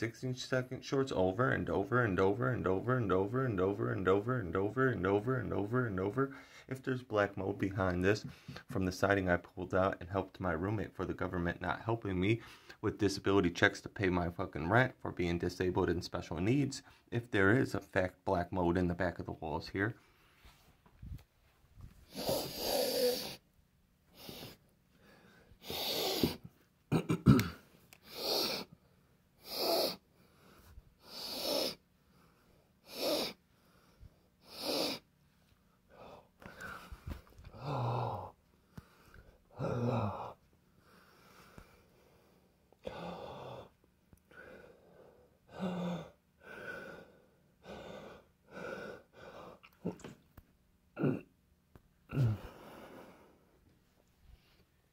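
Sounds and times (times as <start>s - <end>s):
person breathing hard: 22.0s - 23.4s, 24.1s - 26.5s, 28.0s - 35.1s, 35.9s - 49.8s, 52.1s - 53.6s.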